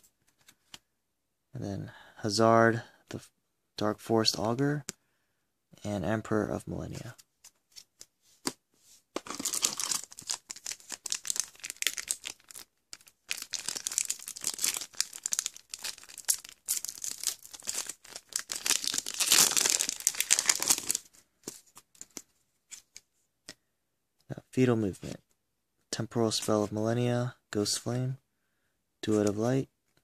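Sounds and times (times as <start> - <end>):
foil wrapper crinkling: 9.2 - 21.1.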